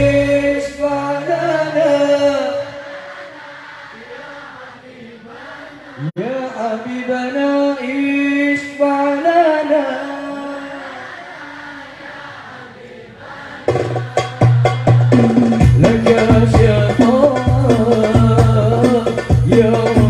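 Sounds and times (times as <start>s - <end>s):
man singing devotional verse: 0.0s - 2.9s, 5.2s - 11.5s, 15.6s - 20.0s.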